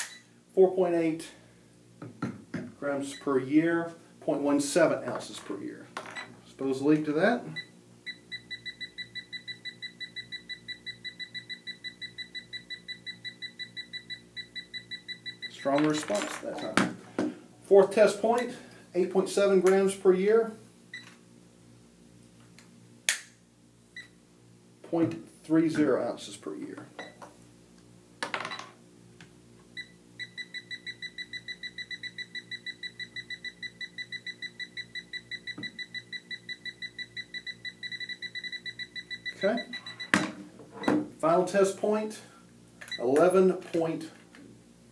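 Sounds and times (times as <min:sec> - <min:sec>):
leak detector beeping rapidly: 0:07.6 - 0:15.8, 0:29.8 - 0:40.2.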